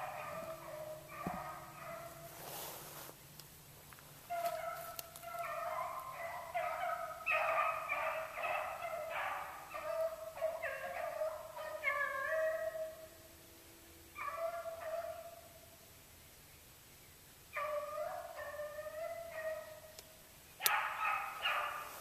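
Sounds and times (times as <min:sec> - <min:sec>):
dogs baying: 0:00.0 - 0:02.3, 0:04.3 - 0:13.0, 0:14.2 - 0:15.3, 0:17.6 - 0:19.8, 0:20.6 - 0:22.0.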